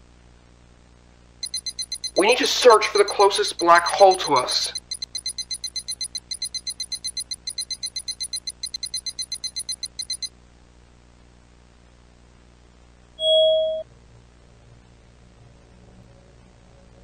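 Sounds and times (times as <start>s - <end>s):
low electronic beep: 1.4s - 10.3s, 13.2s - 13.8s
rapid high electronic beeping: 1.4s - 10.3s.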